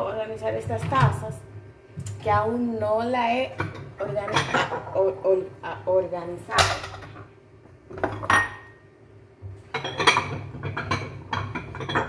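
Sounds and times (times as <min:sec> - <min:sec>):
cups clinking and knocking: 0:07.9 - 0:08.8, 0:09.6 - 0:12.0.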